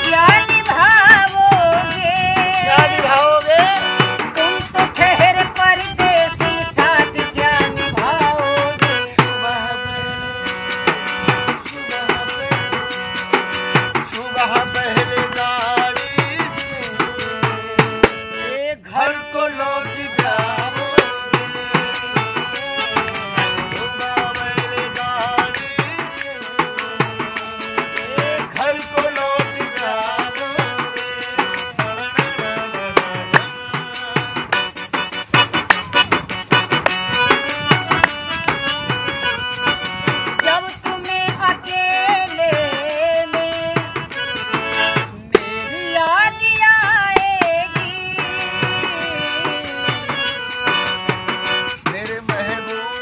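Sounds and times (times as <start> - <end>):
harmonium melody: 0.0 - 53.0
frame drum beating: 20.2 - 45.6.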